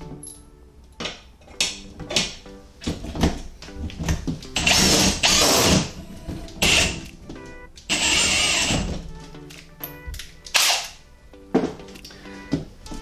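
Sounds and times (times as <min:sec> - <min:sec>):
background music: 0:00.0 - 0:13.0
cordless drill driving bolts: 0:04.6 - 0:06.0, 0:07.9 - 0:08.9.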